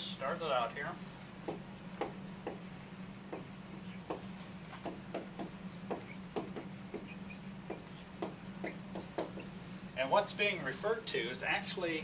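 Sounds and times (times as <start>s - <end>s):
steady low hum: 0.0s - 12.0s
marker writing on whiteboard: 1.1s - 9.7s.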